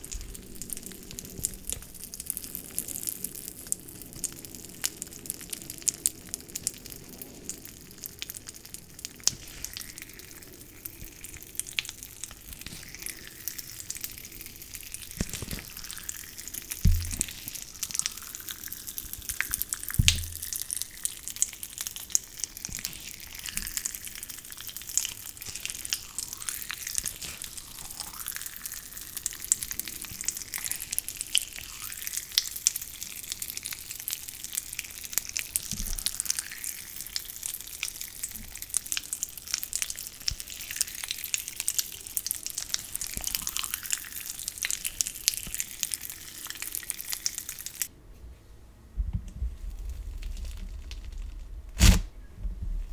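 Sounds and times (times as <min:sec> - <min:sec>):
slime crackling and popping: 0:00.0 - 0:47.9, 0:49.6 - 0:52.1
sticky squishing: 0:09.2 - 0:31.4, 0:49.8 - 0:52.0.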